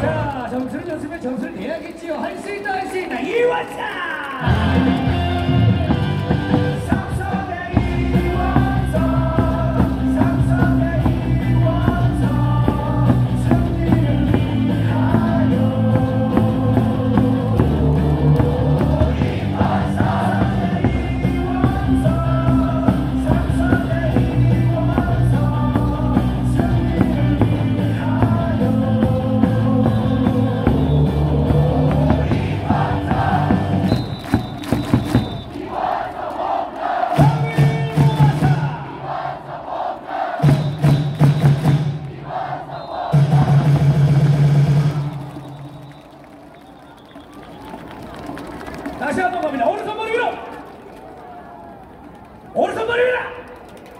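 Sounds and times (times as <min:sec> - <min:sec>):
cheering song over loudspeakers: 0:00.0 - 0:53.8.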